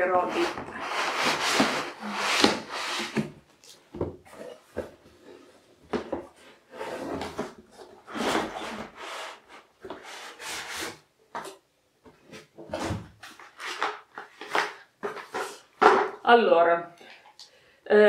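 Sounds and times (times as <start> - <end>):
cardboard scraping and rustling: 0.1 - 3.4, 5.9 - 11.0, 12.3 - 16.0.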